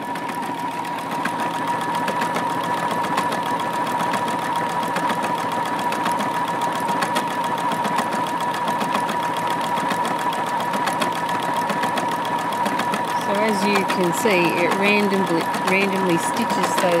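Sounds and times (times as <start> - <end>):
sewing machine running: 0.0 - 17.0.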